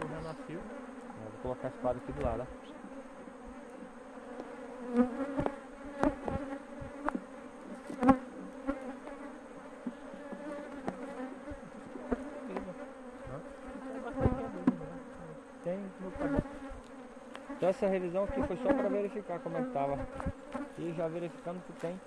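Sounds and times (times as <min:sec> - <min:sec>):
honeybees buzzing: 0:00.0 - 0:22.0
hive tool knocking on wood: 0:03.8 - 0:08.2, 0:09.8 - 0:12.8, 0:13.8 - 0:15.0, 0:16.1 - 0:17.6.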